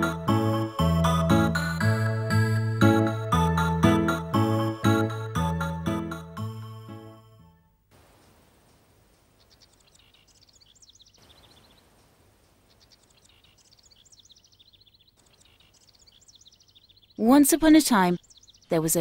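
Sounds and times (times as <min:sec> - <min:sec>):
soft background hiss: 0:07.7 - 0:19.0
small birds twittering: 0:08.2 - 0:19.0.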